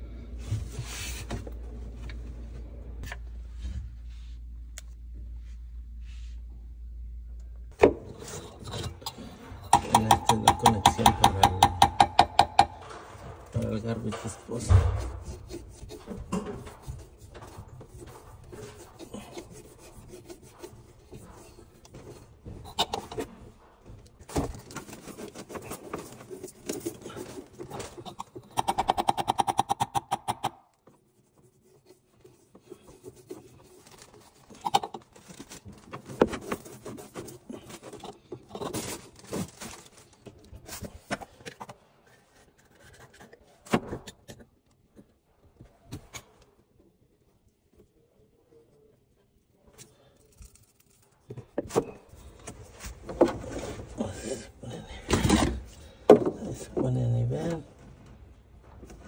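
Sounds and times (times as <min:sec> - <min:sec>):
rubbing and scraping on pipe: 0:08.0 - 0:23.9
clicks and knocks: 0:09.0 - 0:17.6.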